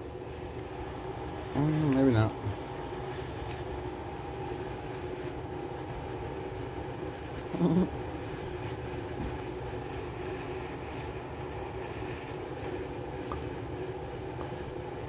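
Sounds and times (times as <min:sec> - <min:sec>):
mechanical hum with low rumble: 0:00.0 - 0:15.0.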